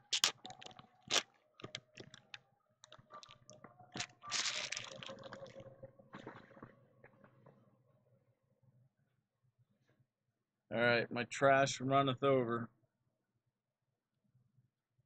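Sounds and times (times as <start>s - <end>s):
foil wrappers crinkling: 0.0s - 3.4s, 4.0s - 5.6s.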